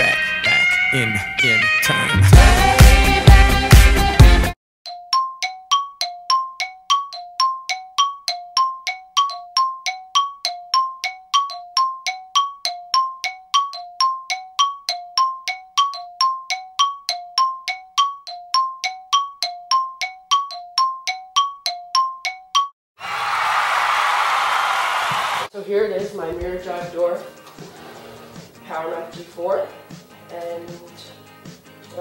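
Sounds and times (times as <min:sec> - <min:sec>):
chime tones in steady rhythm: 0:04.9 - 0:22.7.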